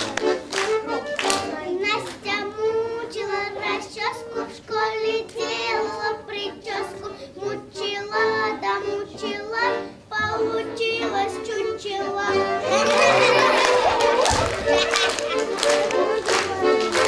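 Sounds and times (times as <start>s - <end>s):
musical accompaniment: 0.0s - 17.0s
girl singing: 1.3s - 14.3s.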